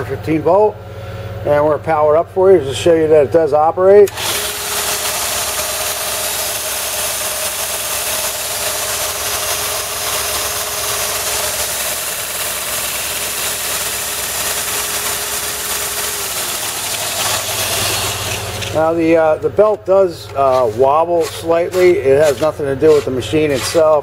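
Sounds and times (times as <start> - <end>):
belt sander running: 4.0 - 24.0.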